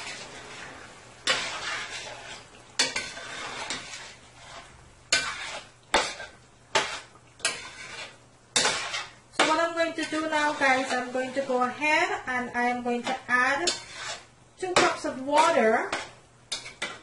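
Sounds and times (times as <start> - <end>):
spoon scraping stockpot: 0.0 - 11.9, 13.0 - 17.0.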